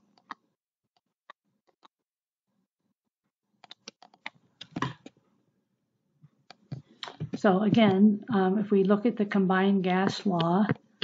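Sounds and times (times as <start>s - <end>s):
stylus tapping on a tablet: 6.5s - 8.0s, 9.9s - 11.0s.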